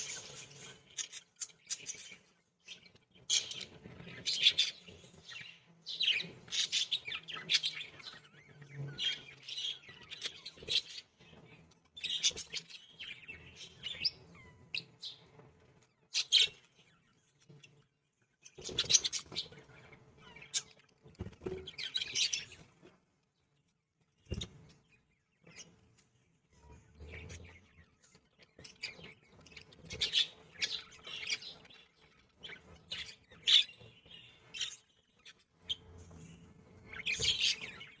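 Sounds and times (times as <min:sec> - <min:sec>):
budgerigars chirping: 0:28.7 - 0:34.9.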